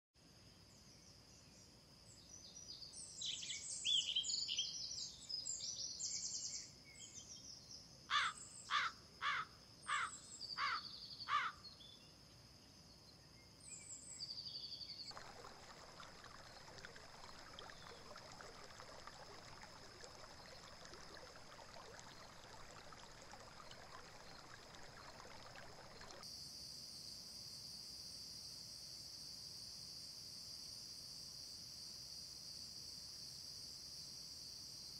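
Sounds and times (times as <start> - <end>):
bird cawing: 8.1 - 11.6.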